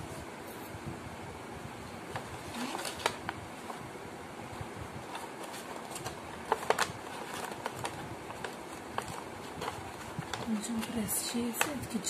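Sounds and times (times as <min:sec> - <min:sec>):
steady background noise: 0:00.0 - 0:12.0
stiff paper crinkling: 0:02.1 - 0:03.8, 0:05.0 - 0:12.0.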